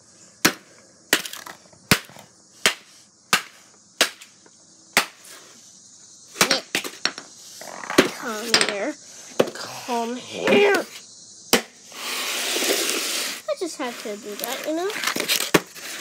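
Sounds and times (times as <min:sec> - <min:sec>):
sharp hits on something hard: 0:01.9 - 0:04.4.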